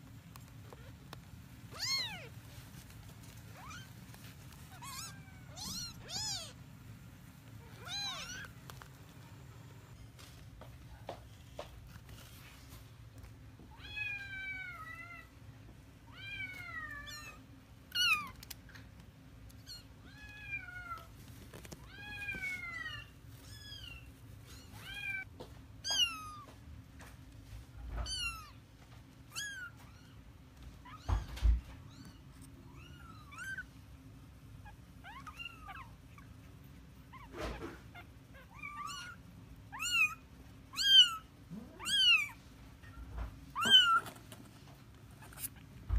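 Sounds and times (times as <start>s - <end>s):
kittens meowing: 1.7s - 2.4s, 4.6s - 6.6s, 7.6s - 8.9s, 30.8s - 33.7s, 37.1s - 42.4s, 43.5s - 44.2s.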